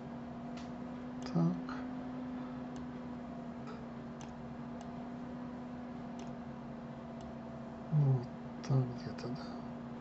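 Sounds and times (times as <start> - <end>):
steady low hum: 0.0 - 10.0
faint mouse clicks: 2.7 - 2.9, 6.1 - 6.4.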